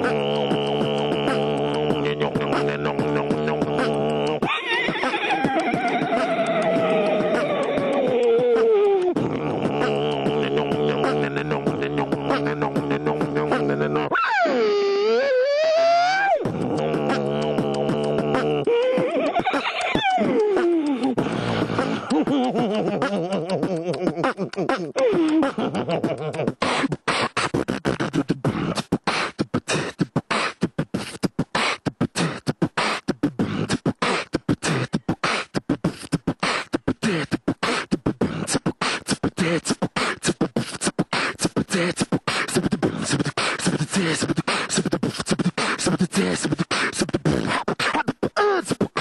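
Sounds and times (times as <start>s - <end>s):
beatboxing into a microphone: 0.0s - 49.0s.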